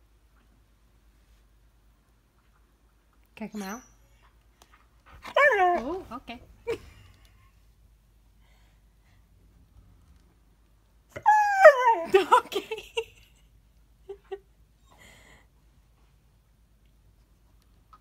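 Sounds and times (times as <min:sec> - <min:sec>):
dog whining: 0:05.2 - 0:06.1, 0:11.1 - 0:12.1.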